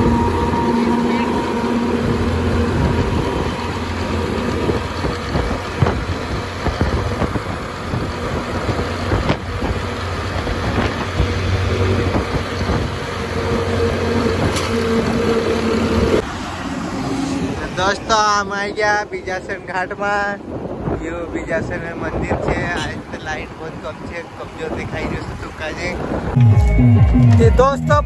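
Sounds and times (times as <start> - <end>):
truck engine: 0.0 - 21.3
road and wind noise: 0.0 - 28.0.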